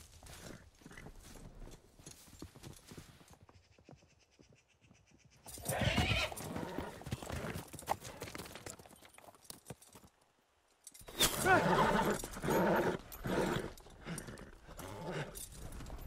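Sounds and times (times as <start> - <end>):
galloping hoofbeats: 0.0 - 10.2, 11.4 - 16.0
horse hooves clip-clopping: 0.0 - 16.0
horse whinnying: 5.5 - 7.6, 11.1 - 15.7.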